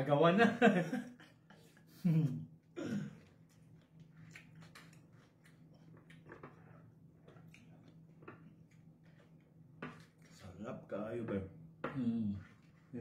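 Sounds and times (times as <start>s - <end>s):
faint chewing: 1.2s - 10.6s.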